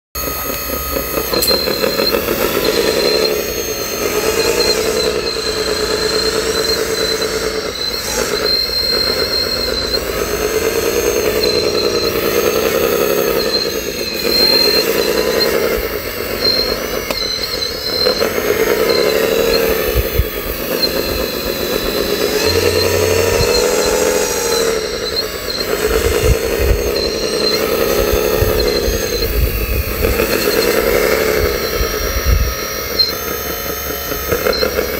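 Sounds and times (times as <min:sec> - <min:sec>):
electric motors whining: 0:00.2 - 0:34.9.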